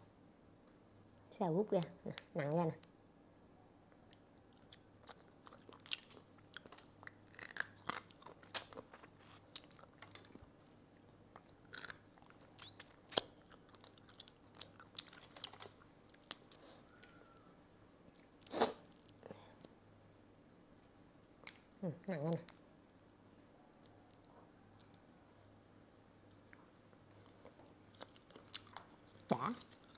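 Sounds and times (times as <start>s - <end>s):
crab shell cracking and crunching: 4.0s - 10.4s, 11.4s - 17.2s, 23.7s - 25.1s
chewing: 4.0s - 17.4s, 26.3s - 29.9s.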